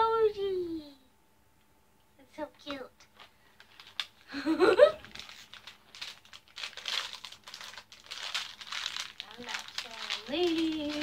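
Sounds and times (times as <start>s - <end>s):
packaging crinkling: 3.1s - 11.0s.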